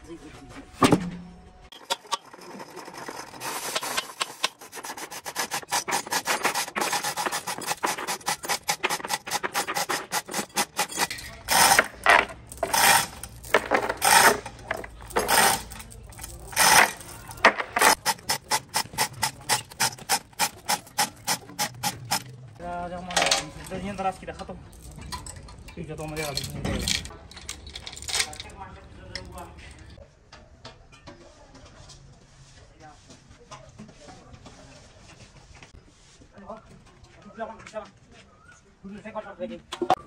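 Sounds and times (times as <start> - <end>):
hand tool scraping: 1.7 - 22.4.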